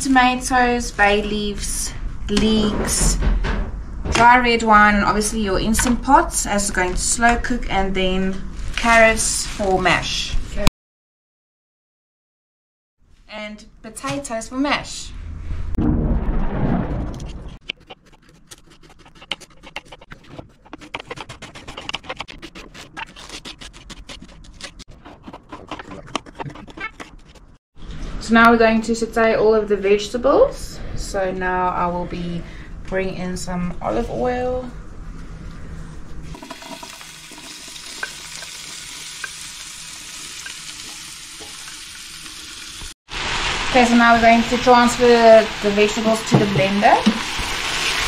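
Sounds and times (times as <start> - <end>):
vegetables sizzling in oil: 36.3 - 48.0.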